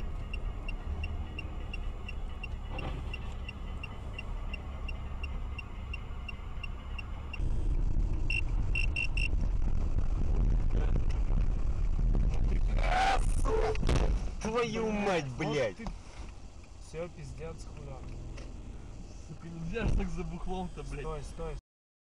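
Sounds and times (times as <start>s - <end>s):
turn signal ticking: 0.0s - 9.8s, 15.8s - 16.8s
car engine and road rumble: 0.0s - 21.6s.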